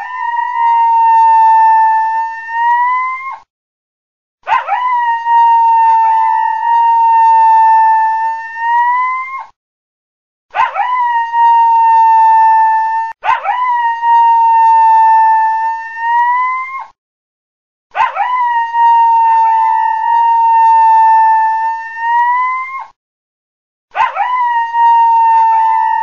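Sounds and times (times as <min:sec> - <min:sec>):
coyote howling: 0:04.5 - 0:09.4, 0:18.0 - 0:22.8, 0:24.0 - 0:26.0.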